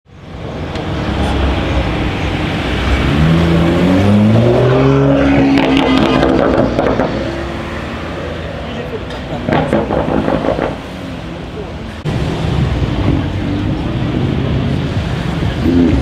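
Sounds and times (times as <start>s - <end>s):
car accelerating past: 2.5s - 8.6s.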